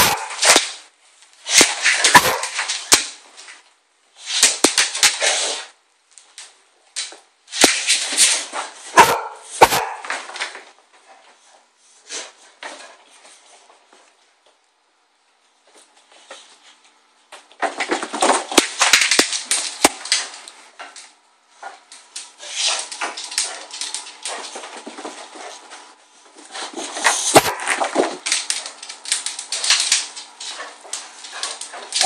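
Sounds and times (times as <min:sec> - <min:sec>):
dog barking: 0:00.0 - 0:00.4, 0:02.1 - 0:02.6, 0:08.9 - 0:10.1.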